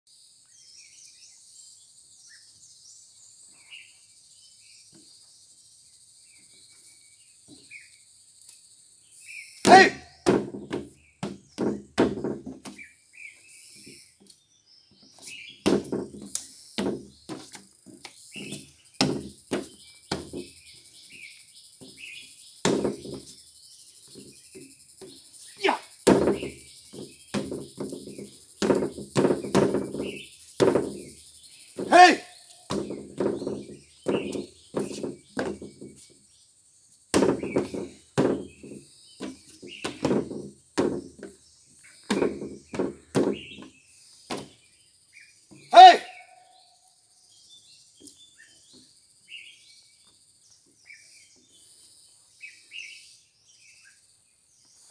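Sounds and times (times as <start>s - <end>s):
birds chirping: 0.1s - 54.9s
insects buzzing: 0.1s - 54.9s
stamps on wooden deck: 9.6s - 12.9s, 15.0s - 20.6s, 21.8s - 23.4s, 26.0s - 36.2s, 37.1s - 41.4s, 42.0s - 44.6s.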